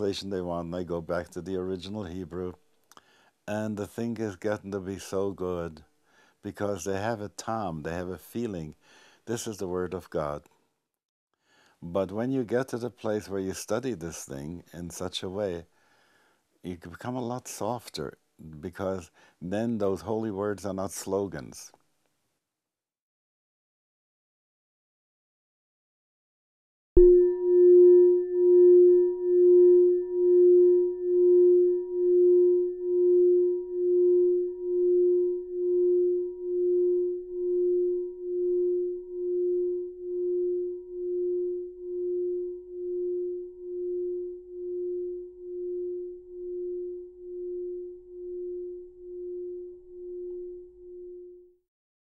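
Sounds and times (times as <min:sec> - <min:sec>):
bell-like tone ringing: 0:27.0 - 0:51.4.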